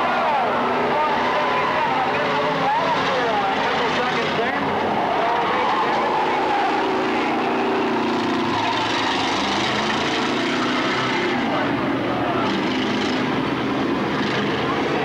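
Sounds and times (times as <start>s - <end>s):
race car engines: 0.0s - 15.0s.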